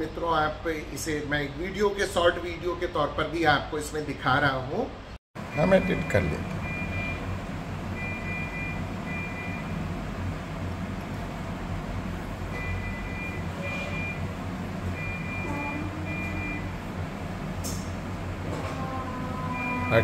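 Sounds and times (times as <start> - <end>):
low traffic rumble: 5.4 - 20.0
short electronic beeps: 5.5 - 7.2, 12.6 - 14.3, 15.0 - 16.8.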